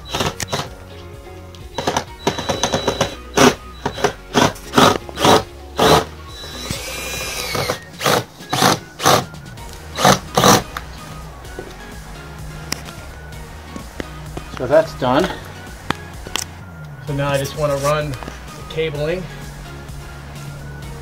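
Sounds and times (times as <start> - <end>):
clicks: 0.0 - 0.8, 1.5 - 5.1, 12.6 - 13.0
cordless drill driving screws: 0.0 - 0.8, 1.8 - 9.3, 10.0 - 10.8.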